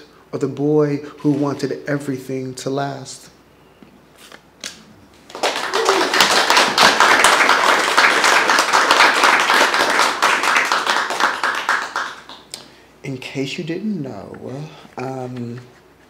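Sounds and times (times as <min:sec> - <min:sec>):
audience applauding: 0:05.3 - 0:12.5.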